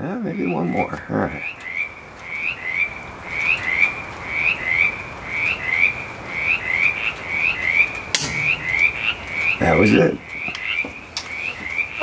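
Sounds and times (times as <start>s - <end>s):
frogs peeping: 0.0s - 12.0s
pistol shot: 8.2s - 8.9s.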